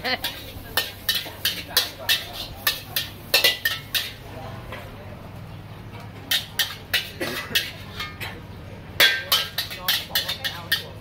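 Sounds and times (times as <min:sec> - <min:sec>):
spatula clanging against wok: 0:00.2 - 0:04.2, 0:06.3 - 0:08.4, 0:09.0 - 0:11.0.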